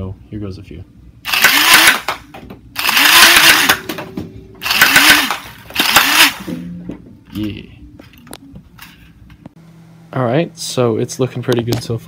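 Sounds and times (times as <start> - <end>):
toy blaster motor whine: 1.3 - 2.2, 2.8 - 3.8, 4.6 - 6.5.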